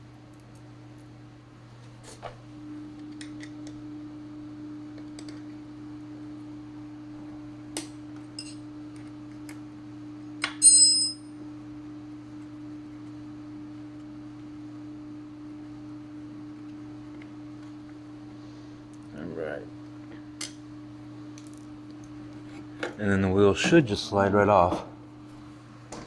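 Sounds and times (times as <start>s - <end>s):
metallic clink: 10.6s - 11.2s.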